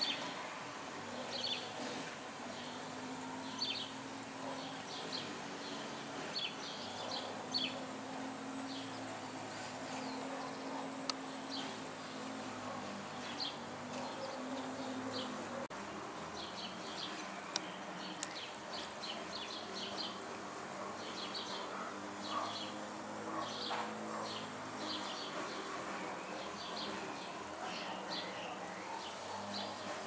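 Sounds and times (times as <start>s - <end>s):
sparrows chirping: 0.0s - 30.0s.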